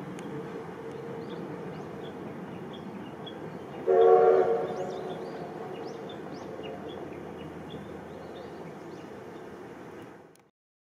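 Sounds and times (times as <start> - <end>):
small birds chirping: 0.8 - 3.9, 4.6 - 10.1
train whistle chord: 3.8 - 5.1.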